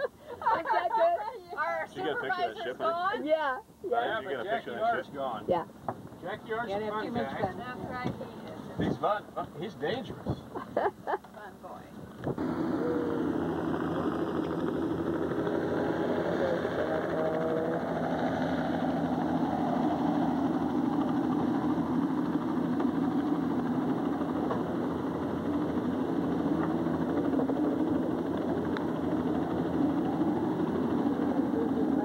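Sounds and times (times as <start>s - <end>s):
faint voices: 11.8s - 20.1s, 26.7s - 32.0s
low engine drone: 12.2s - 32.0s.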